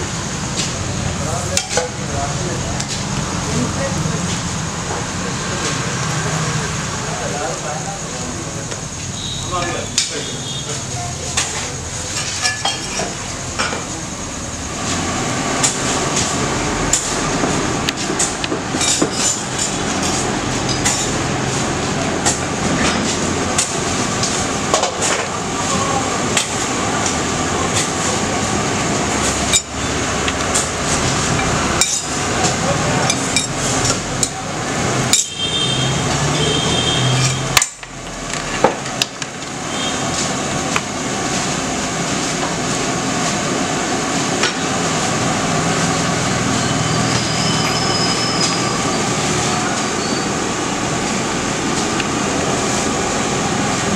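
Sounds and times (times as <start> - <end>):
dosa sizzling on a griddle: 0.0 - 53.9
metal utensils clinking on pan: 11.3 - 13.8, 31.4 - 32.2.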